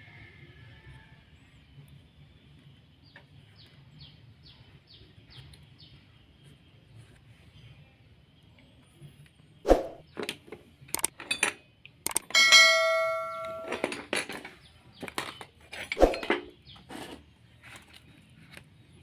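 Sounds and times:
metal tools knocking and clinking: 0:10.2 - 0:16.6
ringing metallic clang: 0:12.2 - 0:14.2.

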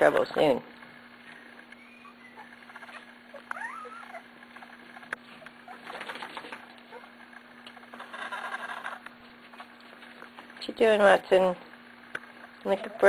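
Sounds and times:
puppy squeaking: 0:01.3 - 0:04.7
soft scratching and shuffling: 0:04.0 - 0:10.9.

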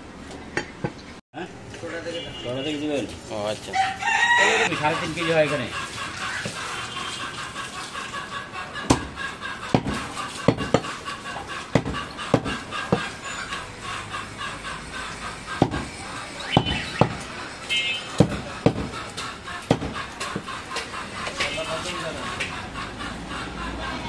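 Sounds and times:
knife chopping on wooden block: 0:08.8 - 0:11.0, 0:11.7 - 0:13.1, 0:15.6 - 0:15.9, 0:16.5 - 0:17.3, 0:18.1 - 0:19.0, 0:19.6 - 0:20.5.

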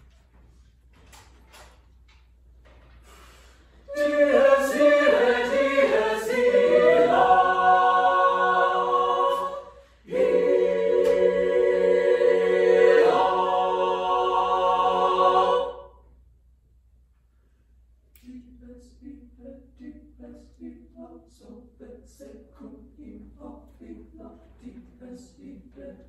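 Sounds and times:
mixed choir singing a cappella: 0:03.8 - 0:16.0, 0:18.2 - 0:26.0.

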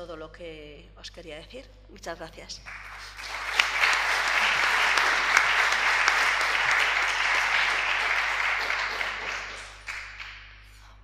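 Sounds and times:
audience applauding: 0:02.7 - 0:10.5.

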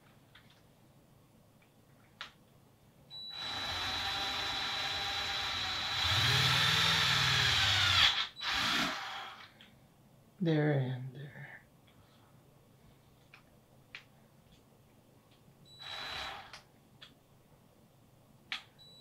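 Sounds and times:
impact driver drilling into plastic: 0:03.3 - 0:09.5, 0:15.8 - 0:16.6.

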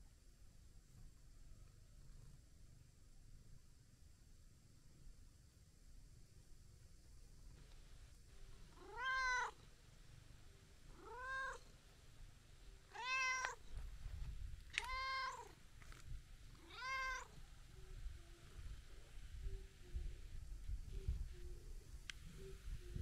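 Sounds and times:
cat meowing: 0:08.7 - 0:09.6, 0:10.9 - 0:11.7, 0:12.9 - 0:13.6, 0:14.7 - 0:15.6, 0:16.6 - 0:17.4.

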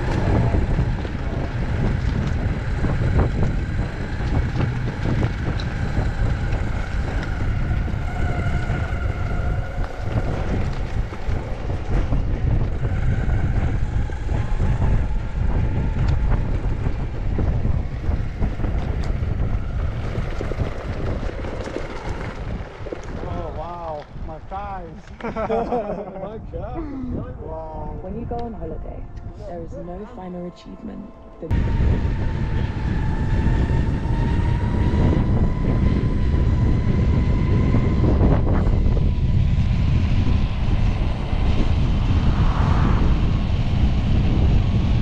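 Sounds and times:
skateboard wheels rumbling on dirt: 0:00.0 - 0:26.3, 0:31.5 - 0:45.0
wind buffeting microphone: 0:00.0 - 0:45.0
faint wavering whine: 0:26.0 - 0:45.0.

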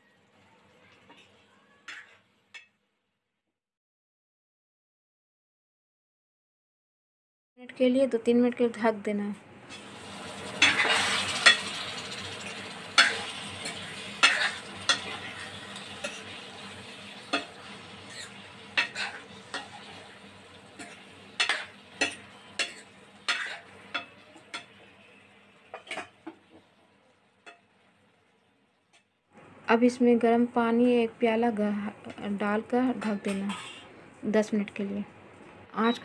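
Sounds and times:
masala sizzling: 0:00.0 - 0:02.7, 0:09.5 - 0:34.6
spoon scraping and knocking pan: 0:10.6 - 0:20.2, 0:20.8 - 0:24.8, 0:25.7 - 0:26.6.

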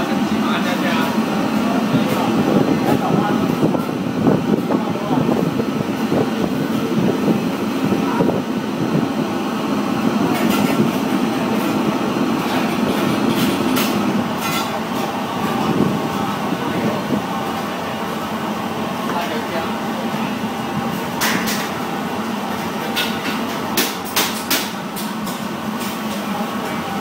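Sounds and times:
exhaust fans and burners humming: 0:00.0 - 0:27.0.

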